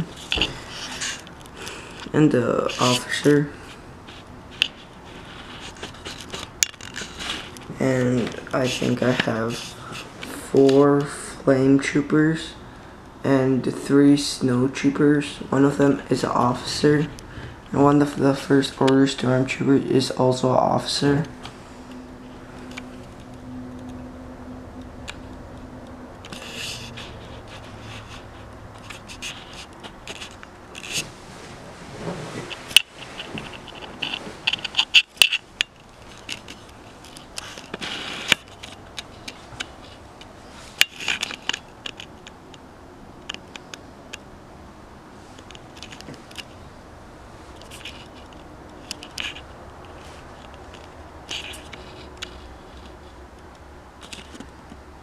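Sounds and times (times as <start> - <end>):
handling scraping and rustling: 0.0 - 11.2, 25.0 - 42.6, 47.4 - 53.3.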